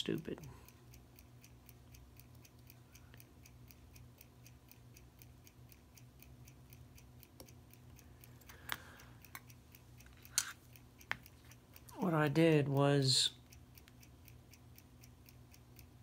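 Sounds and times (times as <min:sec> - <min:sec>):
mechanical watch ticking: 0:00.0 - 0:16.0
small metal clicks: 0:08.2 - 0:11.9.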